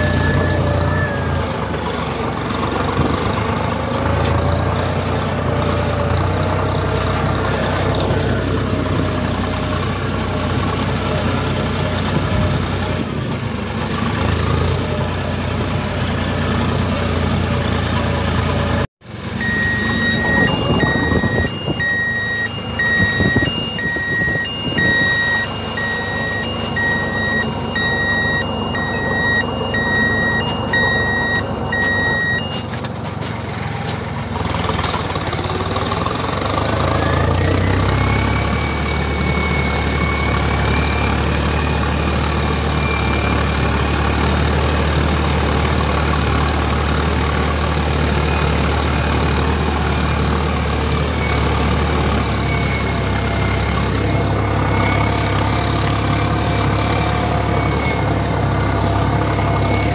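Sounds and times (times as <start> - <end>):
tractor diesel engine running: 0.0 - 59.9
two-tone electronic beeping: 19.4 - 32.7.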